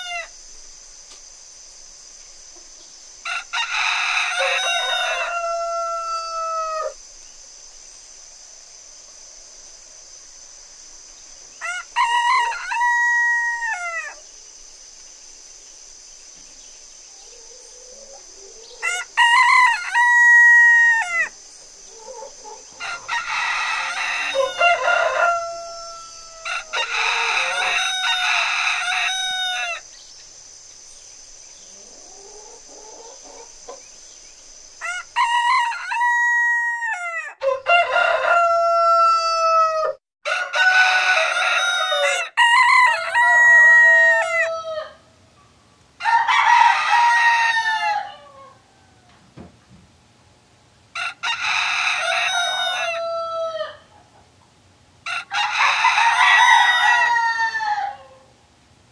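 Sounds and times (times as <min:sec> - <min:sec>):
rooster crowing: 0:00.0 - 0:00.4, 0:03.2 - 0:07.0, 0:11.6 - 0:14.3, 0:17.2 - 0:29.8, 0:34.8 - 0:45.1, 0:46.0 - 0:49.1, 0:50.9 - 0:53.9, 0:55.0 - 0:58.3
steady high-pitched hiss: 0:00.0 - 0:58.9.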